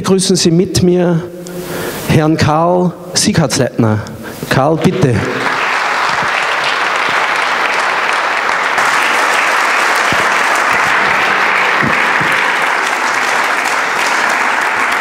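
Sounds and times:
crowd applauding: 5.1 - 15.0.

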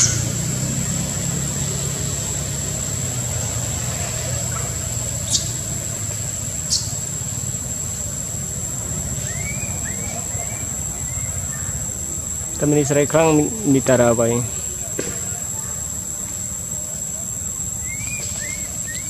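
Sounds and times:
engine humming: 0.0 - 19.0
sharp high chirps: 9.1 - 12.2, 17.8 - 19.0.

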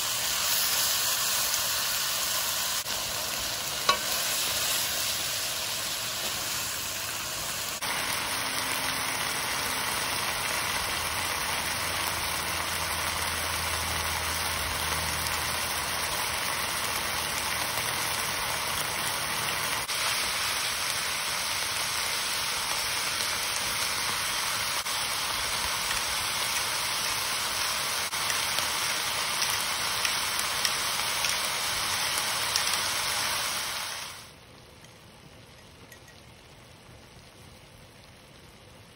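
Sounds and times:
meat and onion sizzling in pan: 0.0 - 35.0.

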